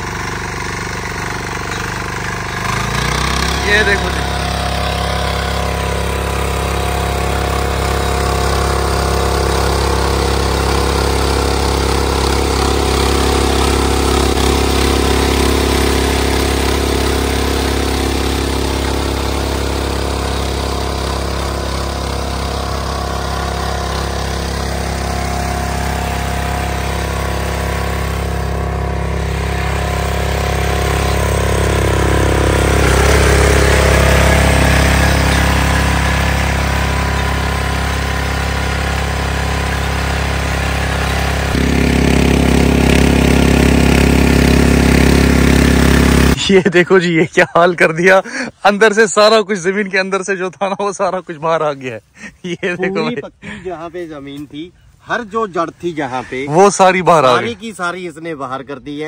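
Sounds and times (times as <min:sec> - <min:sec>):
power weeder engine running: 0:00.0 - 0:46.7, 0:48.0 - 0:49.3, 0:52.1 - 0:59.0
tiller blades churning soil: 0:00.0 - 0:59.0.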